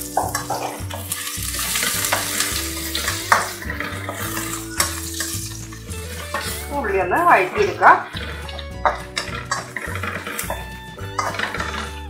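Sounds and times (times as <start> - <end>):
metal spatula scraping pan: 0.0 - 12.0
vegetables sizzling in hot oil: 0.0 - 12.0.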